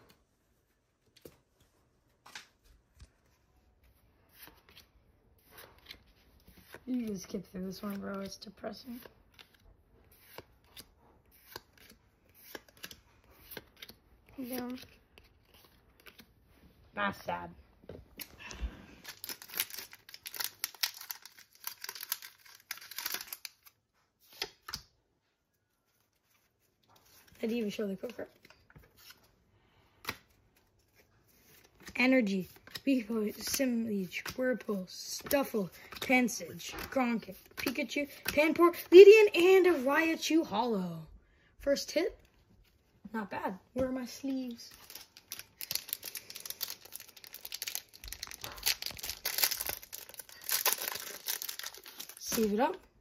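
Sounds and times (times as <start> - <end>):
trading cards flicking and rustling: 2.2 - 16.4, 18.1 - 24.9, 43.8 - 52.7
foil wrapper crinkling and tearing: 19.0 - 23.8, 44.6 - 52.7.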